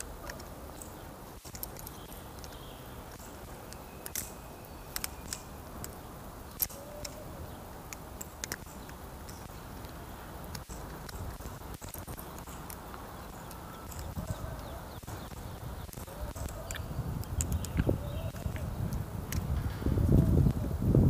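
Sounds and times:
butterfly knife metallic clicks: 0.0s - 7.2s.

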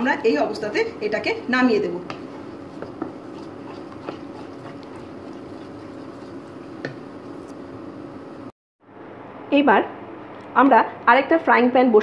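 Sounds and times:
utensil stirring sauce in pan: 1.3s - 8.4s.

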